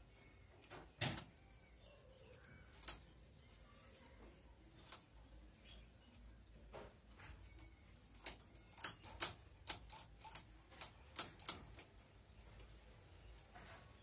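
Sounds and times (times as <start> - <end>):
knitting machine needles clicking: 2.4 - 3.1, 7.4 - 13.6.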